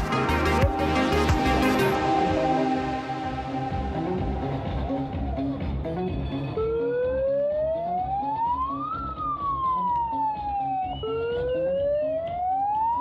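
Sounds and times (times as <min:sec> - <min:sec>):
music with steady beat: 0:00.0 - 0:13.0
siren wailing: 0:00.0 - 0:13.0.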